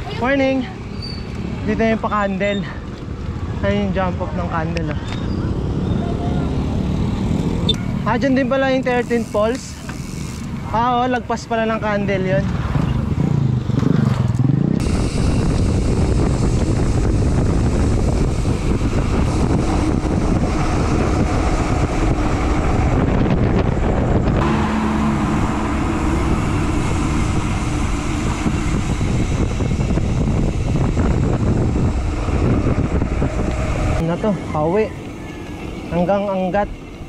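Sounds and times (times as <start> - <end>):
wind buffeting microphone: 10.2 - 37.0.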